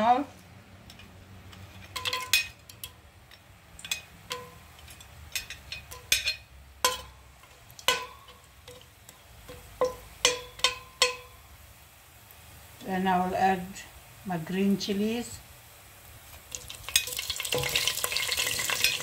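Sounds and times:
spoon and spices clinking on pot: 0.8s - 11.4s, 16.5s - 19.0s.

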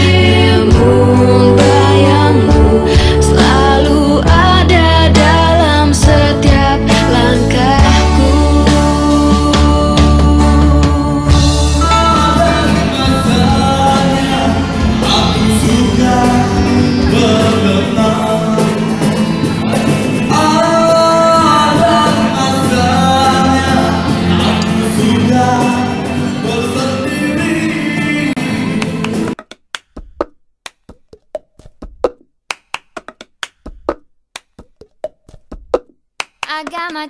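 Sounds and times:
live pop band playing: 0.0s - 29.4s
person singing: 0.0s - 29.4s
recorded ballad: 0.0s - 29.4s.

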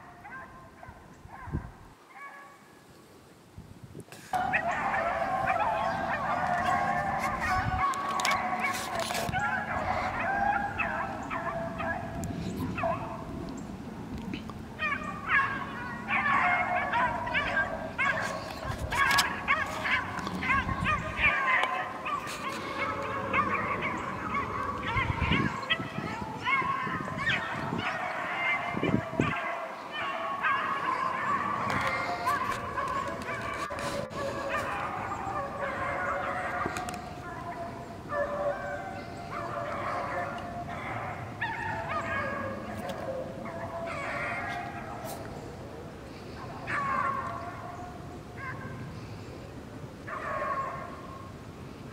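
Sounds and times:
beagles baying: 0.0s - 2.6s, 4.3s - 49.4s, 50.0s - 51.4s.

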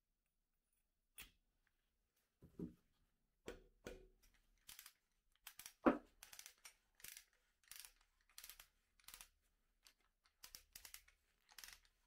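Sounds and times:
ratchet wrench clicking: 4.6s - 12.0s.

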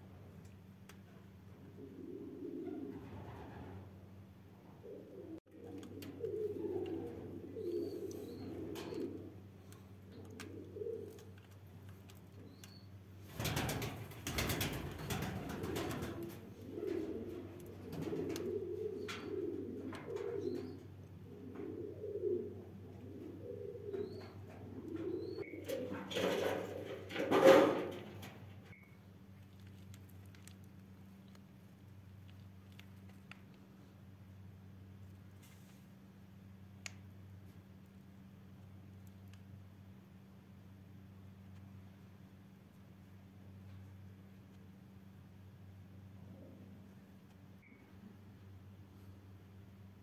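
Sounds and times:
steady low hum: 0.0s - 50.0s
pigeons cooing: 1.6s - 4.0s, 4.7s - 11.6s, 13.4s - 28.3s.

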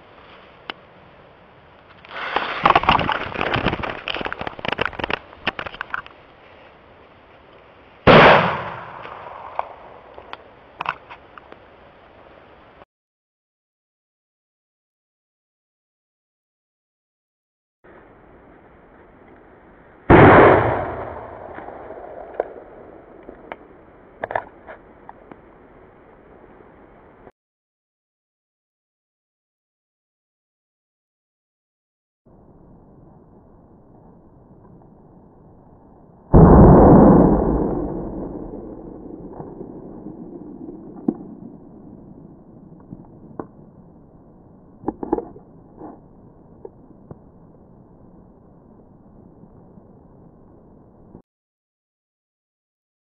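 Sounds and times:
muffled outdoor noise: 0.0s - 12.8s, 17.9s - 27.3s, 41.2s - 51.2s
sharp knocks and cracks: 2.4s - 6.2s
deep slowed explosion bang: 20.1s - 23.0s, 36.3s - 42.7s
long rumble: 32.3s - 51.2s.

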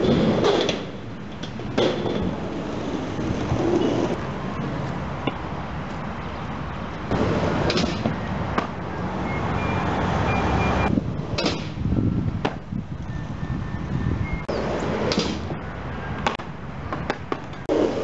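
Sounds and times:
skateboard wheels rolling on asphalt: 0.0s - 13.4s, 14.5s - 18.0s.

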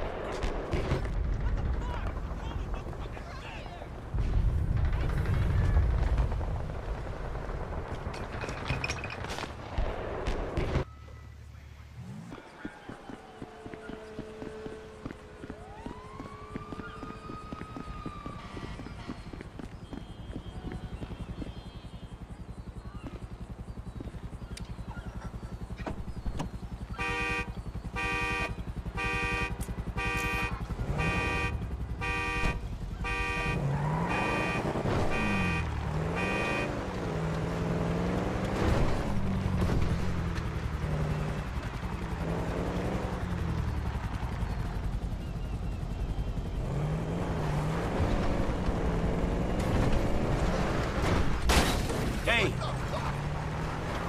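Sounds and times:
traffic hum: 0.0s - 54.0s
car alarm: 12.6s - 25.8s, 26.4s - 36.8s.

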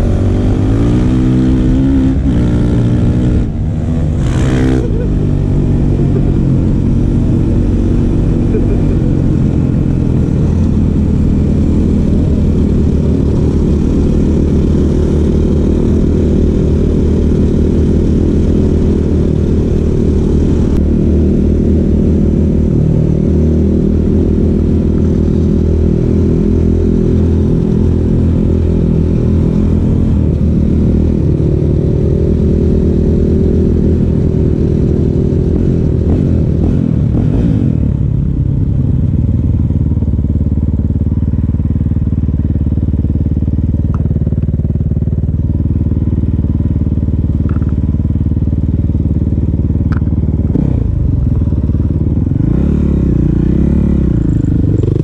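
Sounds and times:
dirt bike engine revving: 0.0s - 31.5s.

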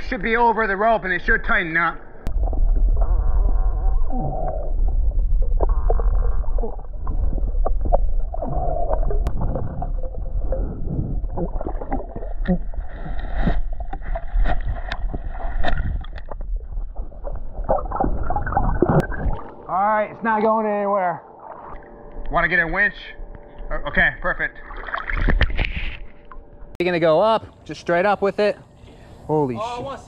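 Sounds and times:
underwater rumble: 0.0s - 26.8s
bubbling: 2.2s - 19.8s, 24.5s - 26.5s
clicks and knocks underwater: 2.3s - 19.5s, 24.7s - 26.4s.

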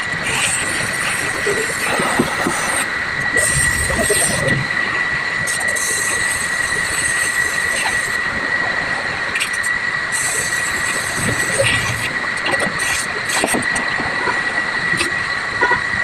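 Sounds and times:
welding torch flame hissing: 0.0s - 4.7s, 5.4s - 8.2s, 9.4s - 13.8s.

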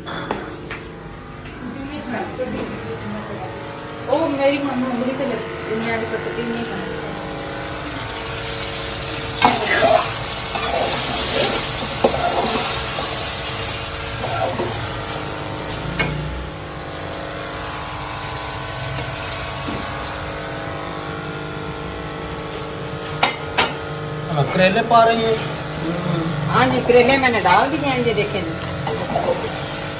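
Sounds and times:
steady hum: 0.0s - 29.9s
food sizzling in a pan: 3.7s - 29.9s
spoon stirring in a pan: 9.4s - 13.3s.

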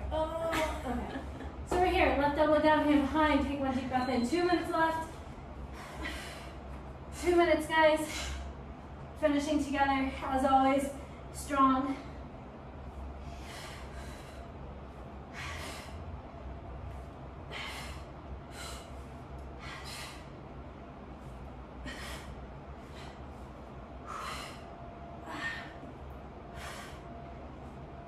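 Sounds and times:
women breathing heavily: 5.2s - 9.1s, 11.9s - 27.8s.

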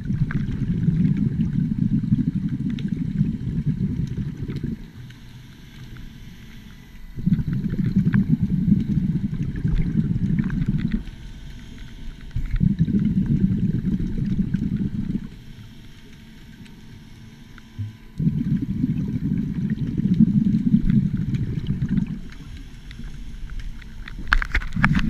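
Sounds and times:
scuba diver exhaling bubbles: 0.0s - 4.9s, 6.8s - 11.1s, 12.3s - 15.4s, 17.8s - 25.0s
crackling clicks: 0.0s - 25.0s.

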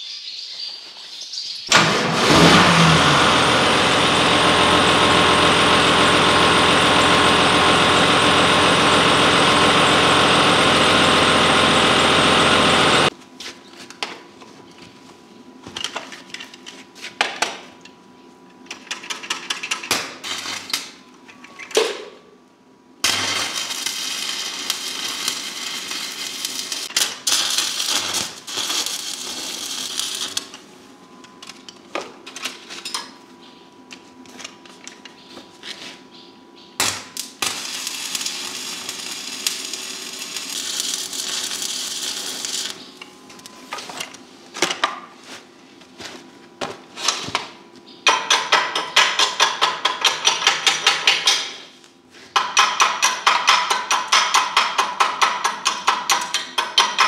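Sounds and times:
arc welding crackle and hiss: 4.0s - 13.5s, 19.0s - 21.0s, 23.0s - 30.7s, 36.8s - 44.2s.

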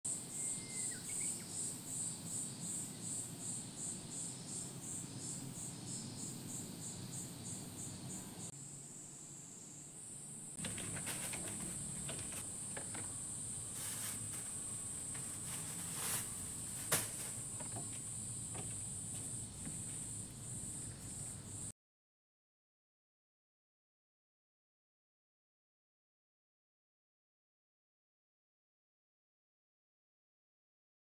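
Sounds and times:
high insect buzz: 0.1s - 21.7s
insects chirping rhythmically: 0.1s - 21.7s
footsteps on wooden deck: 10.6s - 21.2s.

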